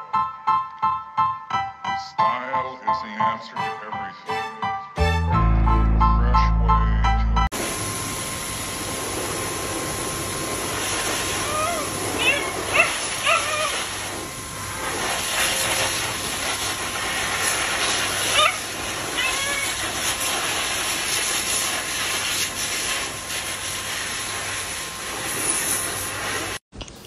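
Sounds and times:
blow dryer rushing air: 7.5 - 26.6
puppy whining: 11.2 - 14.1, 18.2 - 19.9.

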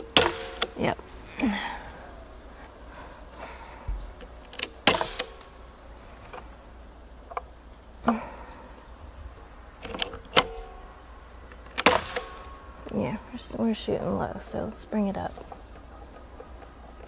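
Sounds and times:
pistol slide racked by hand: 4.5 - 5.5
pistol shot with slide clack: 11.8 - 12.5.

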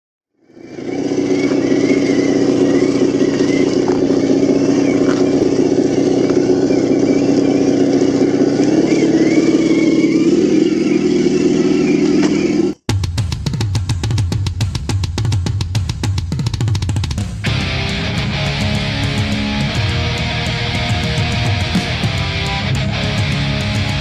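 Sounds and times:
electric motors whining: 0.4 - 12.8, 17.5 - 24.0.

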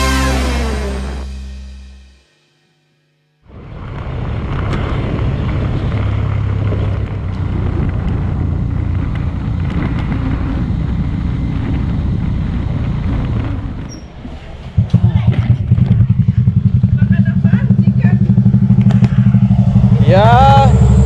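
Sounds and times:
motorcycle engine running: 0.0 - 2.2, 3.5 - 13.9, 14.7 - 21.0
wind rush over microphone: 3.5 - 16.8.

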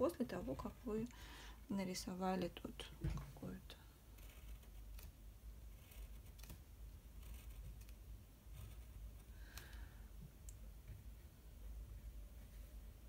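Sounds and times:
pen scratching on paper: 4.2 - 5.0, 5.7 - 6.4, 7.2 - 9.0.

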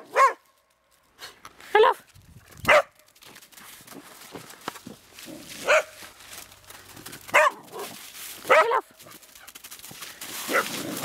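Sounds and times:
dog barking: 0.0 - 0.4, 2.7 - 2.9, 5.6 - 6.0, 7.3 - 8.9, 10.4 - 10.8
leaves rustling underfoot: 0.0 - 11.0.

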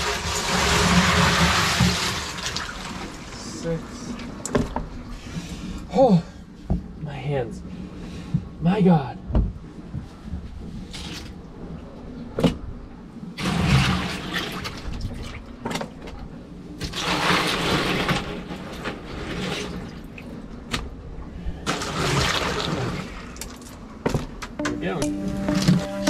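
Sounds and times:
water sloshing in cooler: 0.0 - 4.8, 13.4 - 21.0, 21.6 - 24.3.

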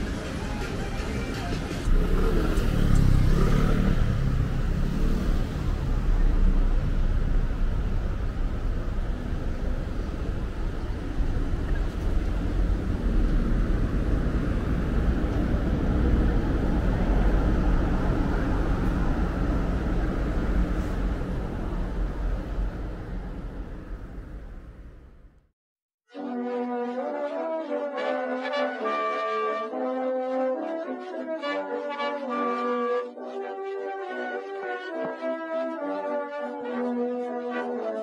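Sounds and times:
road traffic rumble: 0.0 - 25.5.

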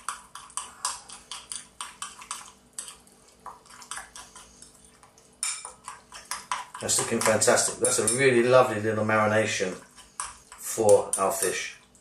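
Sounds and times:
metal spoon scraping ceramic bowl: 5.4 - 8.4, 9.5 - 11.6.

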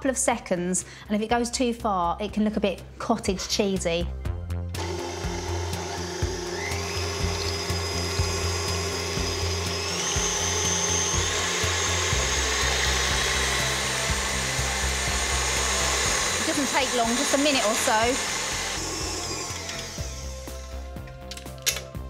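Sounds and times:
whisk whipping cream: 4.8 - 19.2
stand mixer motor whining: 4.8 - 20.7.

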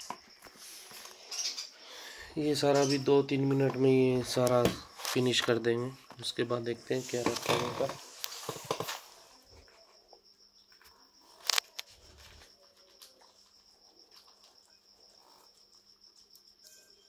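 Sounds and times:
high-pitched insect-like trill: 0.0 - 17.0
guinea pigs rustling and nibbling: 11.3 - 16.6.

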